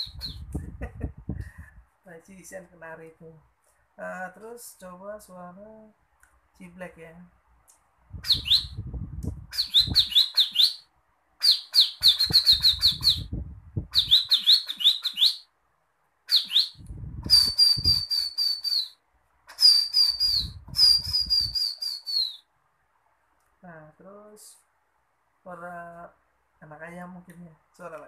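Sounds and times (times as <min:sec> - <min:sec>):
man whistling bird call: 0:17.3 - 0:19.0, 0:19.6 - 0:22.4.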